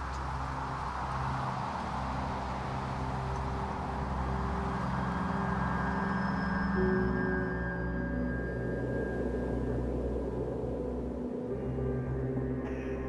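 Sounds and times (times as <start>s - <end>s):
wash of noise: 0.0s - 12.6s
low rumble: 0.0s - 13.0s
low held tones: 4.2s - 13.0s.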